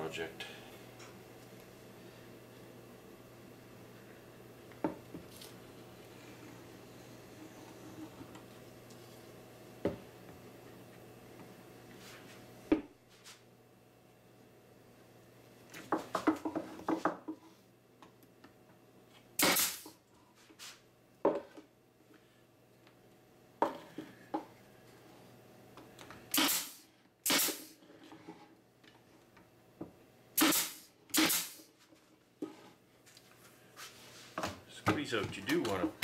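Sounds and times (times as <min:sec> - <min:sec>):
pneumatic stapler shots: 0:19.4 - 0:20.0, 0:26.3 - 0:27.8, 0:30.4 - 0:31.7.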